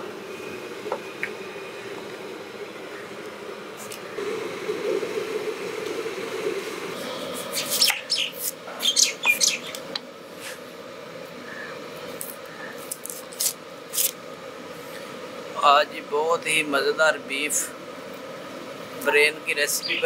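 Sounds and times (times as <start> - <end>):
steady low noise: 0.0 - 12.1.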